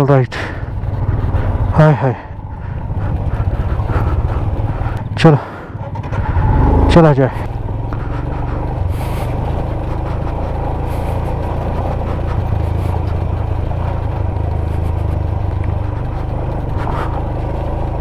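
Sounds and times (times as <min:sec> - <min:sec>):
motorcycle engine running: 0:00.0 - 0:18.0
road and wind noise: 0:00.0 - 0:18.0.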